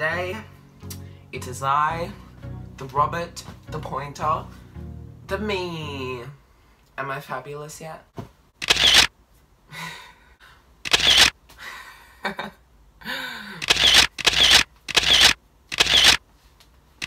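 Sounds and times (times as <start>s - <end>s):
camera shutter clicks: 8.6s - 9.1s, 10.8s - 11.4s, 13.6s - 16.2s
person laughing: 11.9s - 13.6s.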